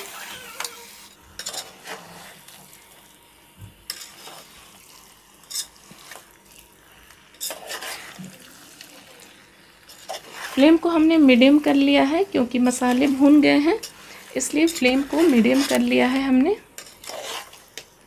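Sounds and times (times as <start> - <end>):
soft sizzle: 0.0 - 18.0
metal spatula scraping pot: 1.4 - 2.6, 3.9 - 4.8, 5.4 - 6.3, 7.3 - 8.8, 9.8 - 17.9.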